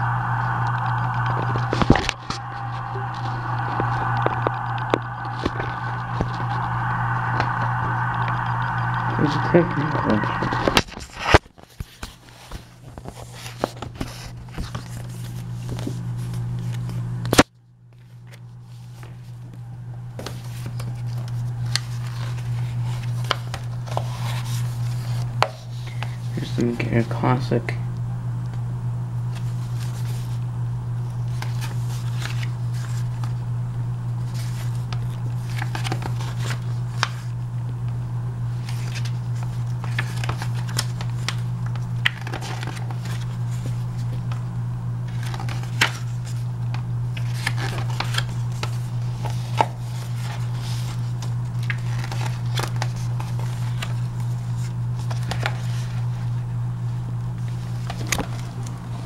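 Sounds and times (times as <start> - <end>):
steady low hum: 0.0 - 59.0
pages turning: 10.4 - 17.0, 20.2 - 26.2, 31.2 - 33.3, 34.3 - 37.3, 38.5 - 44.4, 45.0 - 56.3, 57.4 - 59.0.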